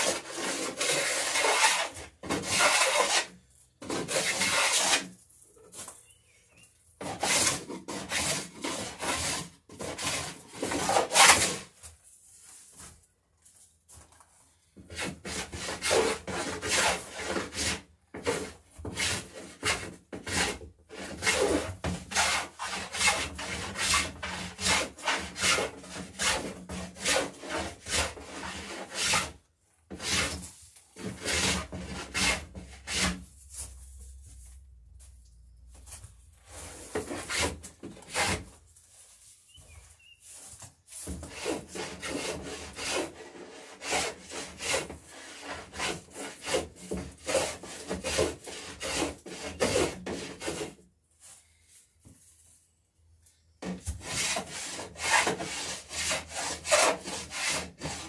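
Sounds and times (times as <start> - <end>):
hand plane scraping wood: 0.0 - 5.1, 7.0 - 11.8, 14.8 - 33.7, 36.4 - 38.6, 40.3 - 50.8, 53.6 - 58.0.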